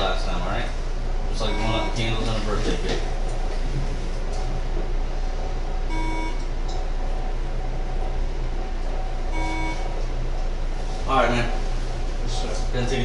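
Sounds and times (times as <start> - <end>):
steady low hum: 0.0 - 13.0
short electronic beeps: 1.4 - 2.0, 5.9 - 6.4, 9.3 - 9.9.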